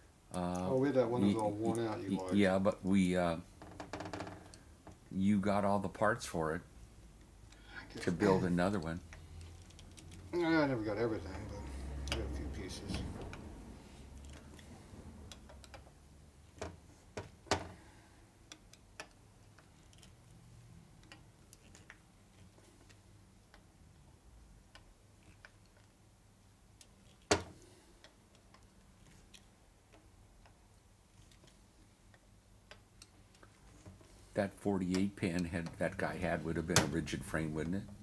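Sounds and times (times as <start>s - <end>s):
small metal parts clicking: 8.8s - 10.4s, 18.5s - 20.4s, 21.0s - 23.6s.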